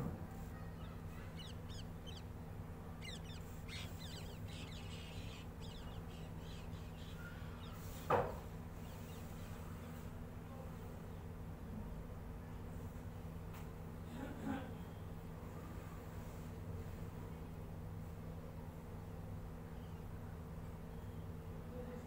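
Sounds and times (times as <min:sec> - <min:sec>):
low buzzing hum: 0:00.0 - 0:12.5
small birds chirping: 0:00.3 - 0:10.0, 0:19.5 - 0:21.4.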